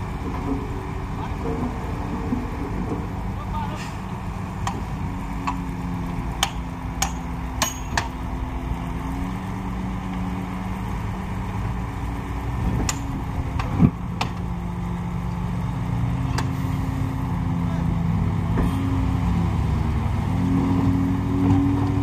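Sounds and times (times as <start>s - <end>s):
diesel engine of heavy machinery: 0.0s - 22.0s.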